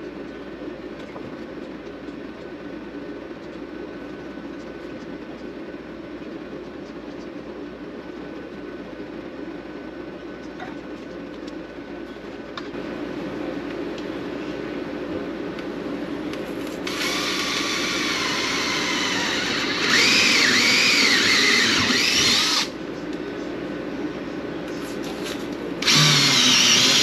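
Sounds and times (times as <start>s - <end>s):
steady low hum: 0.0s - 27.0s
cordless drill boring: 16.9s - 22.7s, 25.8s - 27.0s.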